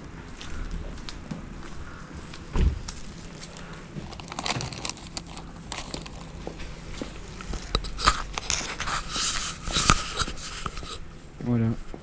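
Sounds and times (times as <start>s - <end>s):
camera handling noise: 7.4s - 11.0s.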